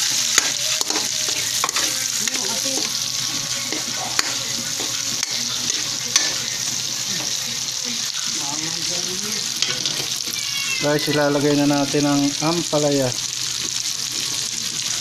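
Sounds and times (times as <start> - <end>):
metal spoon scraping a pan: 0.0 - 8.6, 9.2 - 10.4
onion sizzling in fat: 0.0 - 15.0.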